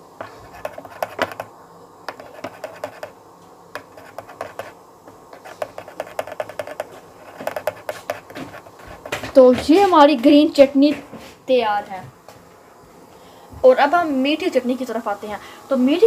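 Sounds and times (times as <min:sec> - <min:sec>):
spoon scraping bowl: 0:02.1 - 0:03.1.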